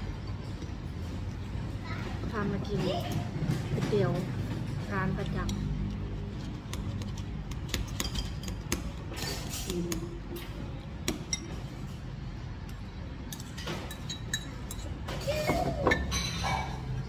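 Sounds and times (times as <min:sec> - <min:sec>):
low background hum: 0:00.0 - 0:17.0
spoon clinking ceramic bowls: 0:13.3 - 0:15.1, 0:15.8 - 0:17.0.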